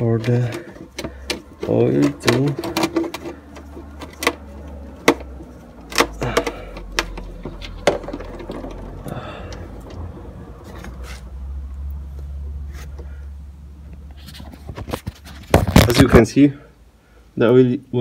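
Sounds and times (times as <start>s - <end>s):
drain plug clicks and knocks: 0.2s - 8.9s.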